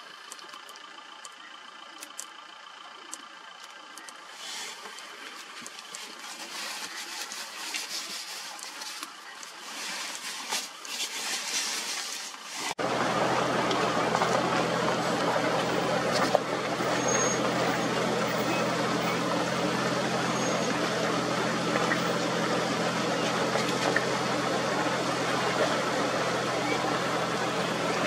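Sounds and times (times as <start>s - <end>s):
sharp ticks: 0.0s - 2.4s
vehicle engine running loudly: 12.8s - 28.0s.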